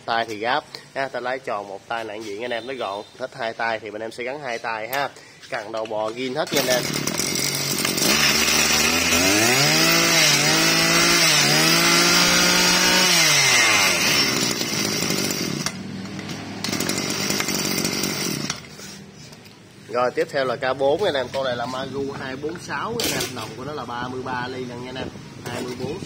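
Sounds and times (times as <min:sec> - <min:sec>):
brush cutter engine revving: 0:06.4 - 0:18.8.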